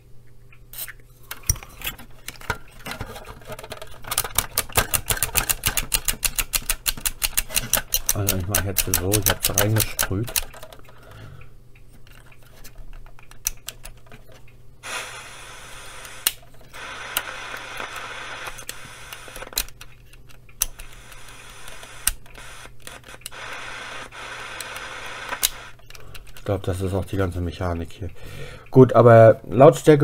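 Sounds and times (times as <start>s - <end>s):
radio static hiss: 14.8s - 19.7s, 20.7s - 25.9s.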